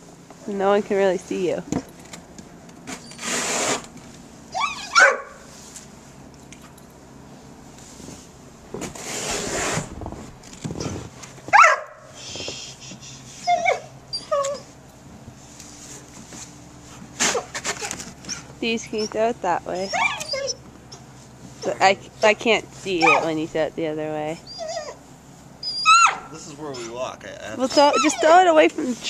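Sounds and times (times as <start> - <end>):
snow shovel scraping snow: 3.1 - 3.9, 7.9 - 11.1
dog whining and yipping: 4.5 - 5.4, 10.8 - 14.8, 17.3 - 23.4, 24.4 - 25.0, 25.6 - 27.0, 27.6 - 29.0.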